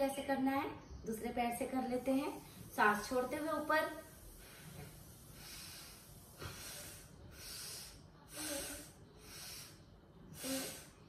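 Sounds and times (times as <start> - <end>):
woman breathing hard: 4.4 - 11.0.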